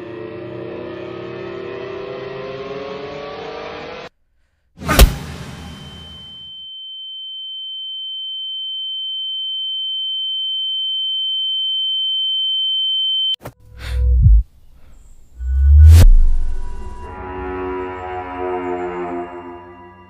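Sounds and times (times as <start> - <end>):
high-pitched ringing tone: 5.6 - 13.4
deep low booming: 13.9 - 14.4, 15.4 - 17.1.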